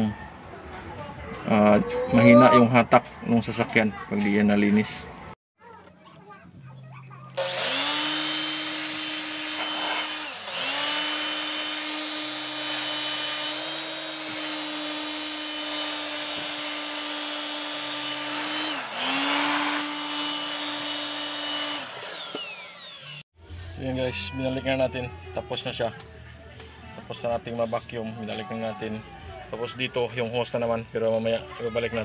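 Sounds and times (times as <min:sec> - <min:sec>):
vacuum cleaner running: 0:07.4 - 0:23.2
vacuum cleaner winding down: 0:07.4 - 0:23.2.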